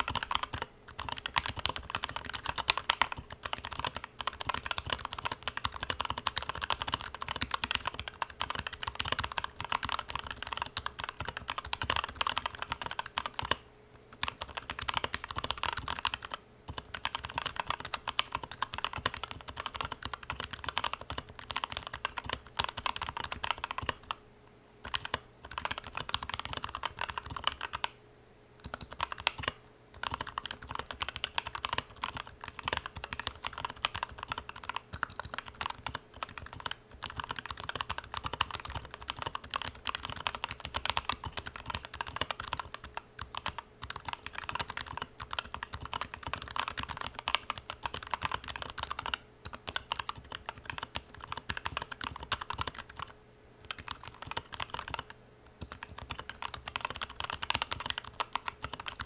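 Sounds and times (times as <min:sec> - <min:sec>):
typing on mechanical keyboard: 0:00.0 - 0:24.2, 0:24.8 - 0:28.0, 0:28.6 - 0:59.0.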